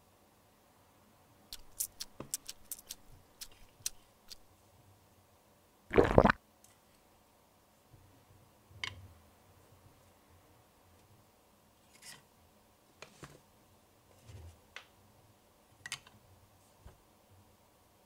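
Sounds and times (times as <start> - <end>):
small sharp clicks: 1.5 - 4.4
liquid splash: 5.9 - 6.4.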